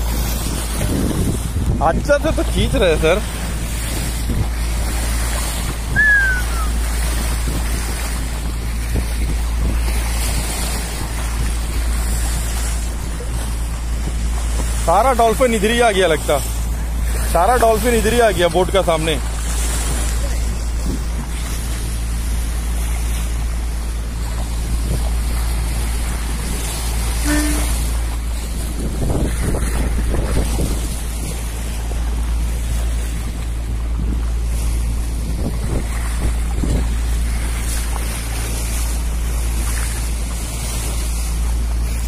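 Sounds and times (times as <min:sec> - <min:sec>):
bow wave splashing along hull: 0:00.0 - 0:42.0
low engine drone: 0:00.0 - 0:42.0
low rumble: 0:00.0 - 0:42.0
wind buffeting microphone: 0:00.0 - 0:42.0
whistle sliding down in pitch: 0:06.0 - 0:06.7.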